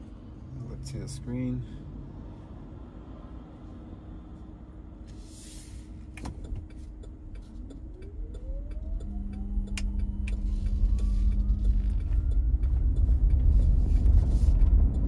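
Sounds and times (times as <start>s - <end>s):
road rumble: 0.0s - 15.0s
steady hum: 4.8s - 15.0s
electric motor whine rising: 7.8s - 14.5s.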